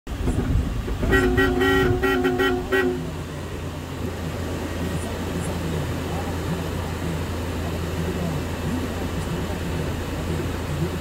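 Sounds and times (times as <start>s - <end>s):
van engine idling: 0.1s - 11.0s
vehicle horn short toots: 1.0s - 3.2s.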